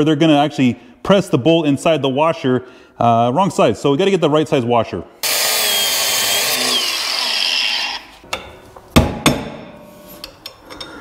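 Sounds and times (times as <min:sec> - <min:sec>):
angle grinder cutting steel: 0:05.2 - 0:08.2.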